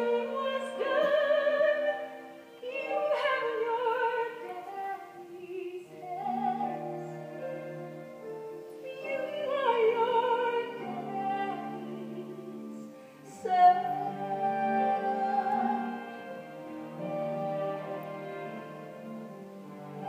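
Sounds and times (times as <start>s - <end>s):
woman singing a ballad: 0.0s - 7.8s, 8.8s - 16.3s
instrumental accompaniment: 0.0s - 20.0s.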